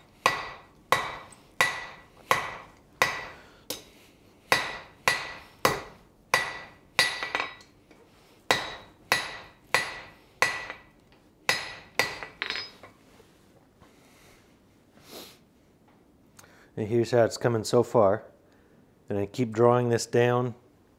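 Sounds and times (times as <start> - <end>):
hammer striking steel on anvil: 0.2 - 3.9, 4.5 - 7.8, 8.5 - 12.9.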